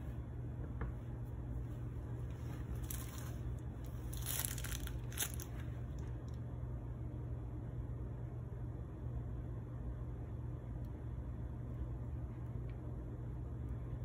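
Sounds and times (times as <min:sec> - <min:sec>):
steady low hum: 0:00.0 - 0:14.0
plastic piping bag crinkling: 0:02.2 - 0:06.1.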